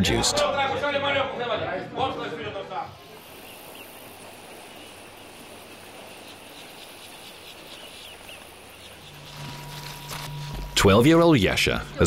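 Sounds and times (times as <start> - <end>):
insects chirping in grass: 3.0 - 10.8.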